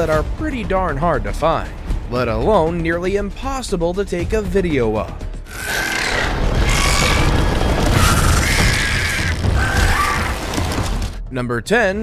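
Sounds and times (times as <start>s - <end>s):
dramatic film music: 0.0s - 12.0s
rumbling booms and crashing: 6.2s - 11.3s.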